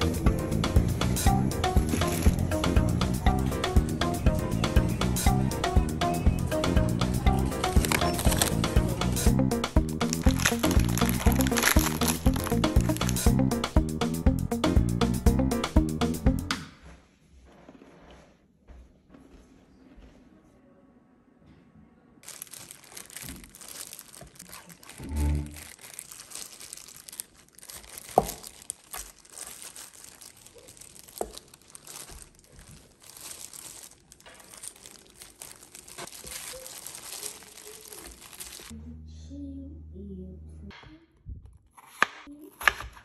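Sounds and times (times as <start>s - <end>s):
plastic glove crinkling: 1.2s - 3.0s, 7.4s - 13.5s, 22.2s - 38.8s.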